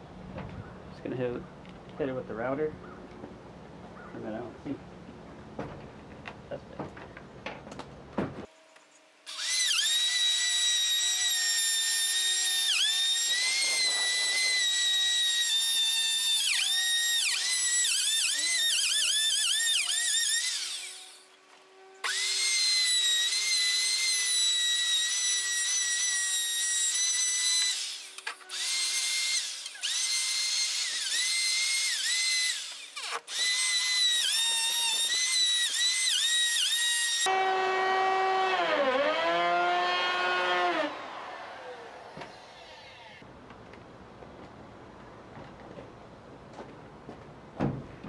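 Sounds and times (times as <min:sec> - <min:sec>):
electric router whining: 0:09.3 - 0:43.3.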